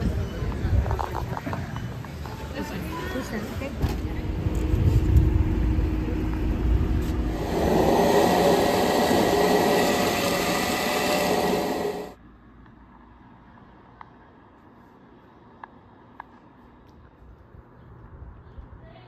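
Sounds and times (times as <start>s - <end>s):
low rumble: 3.9s - 12.2s.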